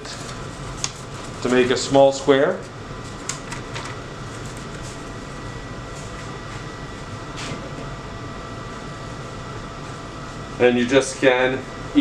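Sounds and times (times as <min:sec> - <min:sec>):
steady mechanical hum: 0:00.0 - 0:12.0
paper crinkling: 0:03.1 - 0:05.0.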